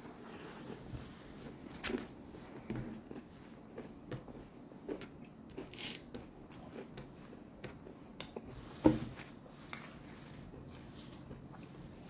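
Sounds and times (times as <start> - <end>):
chewing crisp food: 2.9 - 8.5.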